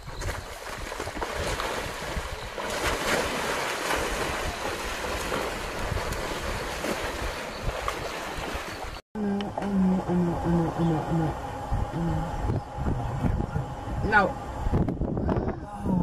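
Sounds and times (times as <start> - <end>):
water splashing and churning: 0.0 - 9.0
wind rumbling on microphone: 0.0 - 16.0.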